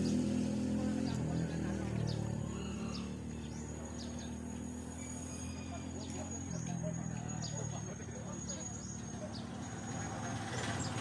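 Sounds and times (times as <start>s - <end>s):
vehicle engine running: 0.0s - 11.0s.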